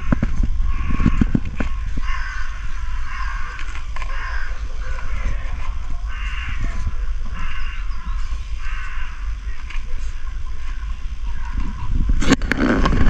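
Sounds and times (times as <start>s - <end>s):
crow cawing: 0.0s - 10.2s
low rumble: 0.0s - 13.0s.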